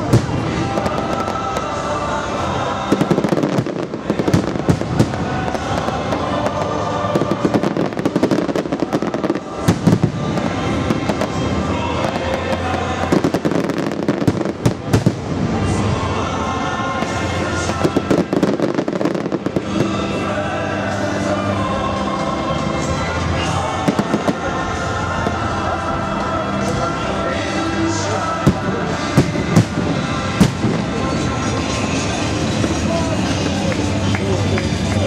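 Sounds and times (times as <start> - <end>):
fireworks bangs and cracks: 0.0 - 21.4, 22.8 - 35.0
music playing: 0.0 - 35.0.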